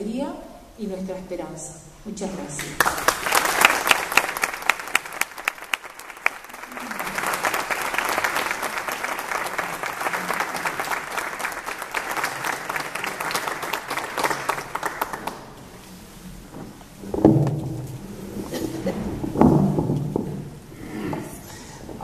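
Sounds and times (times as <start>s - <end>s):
audience applauding: 2.6s - 15.6s.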